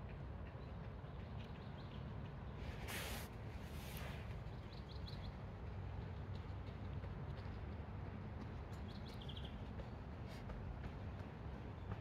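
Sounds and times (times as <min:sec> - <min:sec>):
hissing rustle: 0:02.8 - 0:04.2.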